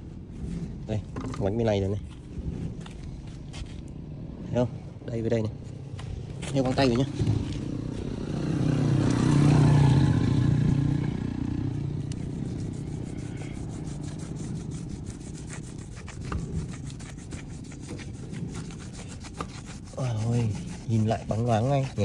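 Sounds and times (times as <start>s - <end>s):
cloth rubbing a tyre: 0.0s - 4.5s, 5.2s - 22.0s
passing vehicle engine: 5.8s - 15.7s.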